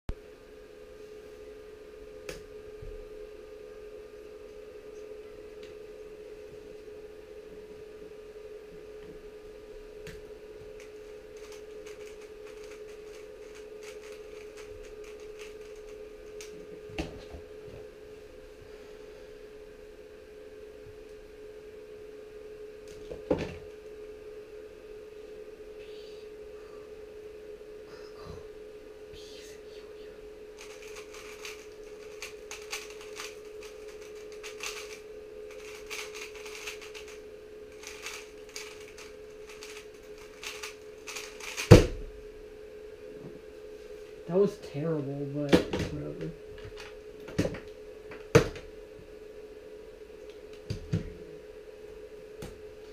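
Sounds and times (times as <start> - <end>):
faint steady hum: 0.1 - 52.9
puzzle cube plastic clicks: 11.4 - 16.6, 30.6 - 41.7.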